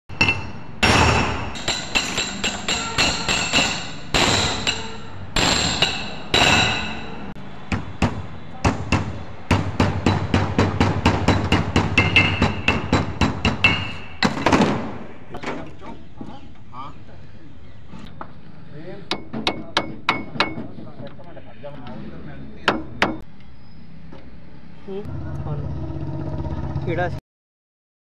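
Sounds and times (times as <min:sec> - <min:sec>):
hammer blows on steel: 0:00.2 - 0:14.3.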